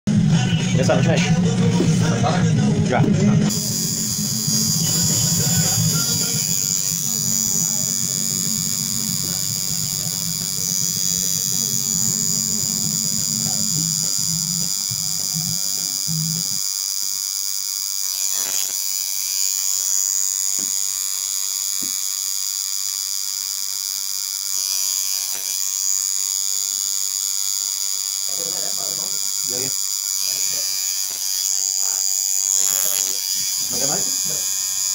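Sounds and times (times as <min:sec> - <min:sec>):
tattoo machine buzzing: 0:00.1 - 0:34.9.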